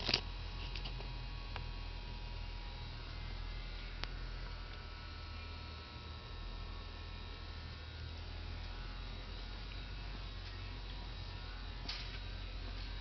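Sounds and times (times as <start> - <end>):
low machinery hum: 0.0 - 13.0.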